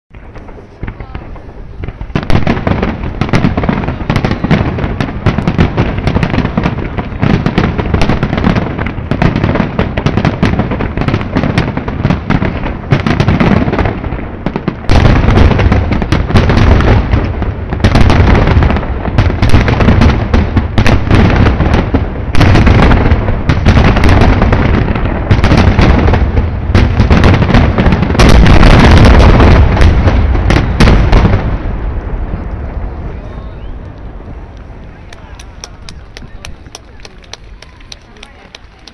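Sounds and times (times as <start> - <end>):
firework shells bursting: 33.6 - 38.9.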